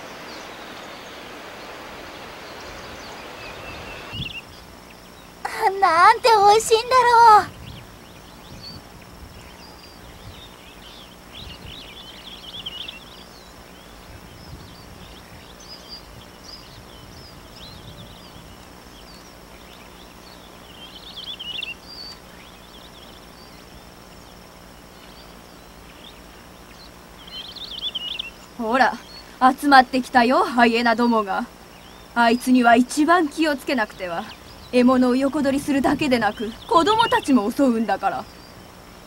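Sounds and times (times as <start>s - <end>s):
faint high hiss: 0.0s - 39.0s
small bird warbling: 30.5s - 38.6s.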